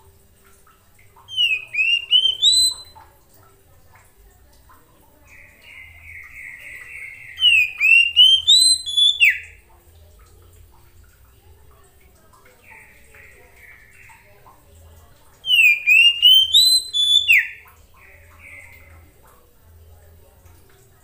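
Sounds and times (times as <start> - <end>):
bird singing whistles: 1.3 - 3.0, 6.1 - 9.6, 15.4 - 17.6.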